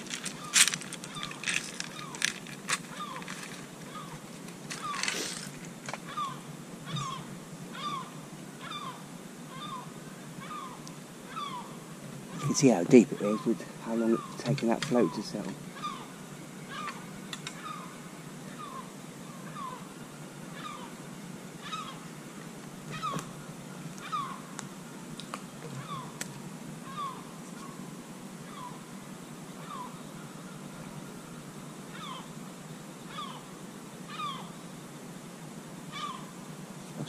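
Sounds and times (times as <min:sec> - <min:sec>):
animal calling: 0:00.0 - 0:05.5, 0:06.1 - 0:21.0, 0:21.6 - 0:22.1, 0:22.9 - 0:23.3, 0:24.0 - 0:24.5, 0:25.7 - 0:26.2, 0:26.8 - 0:27.8, 0:28.4 - 0:28.9, 0:29.6 - 0:30.2, 0:31.9 - 0:32.4, 0:33.1 - 0:33.5, 0:34.1 - 0:34.6, 0:35.9 - 0:36.4.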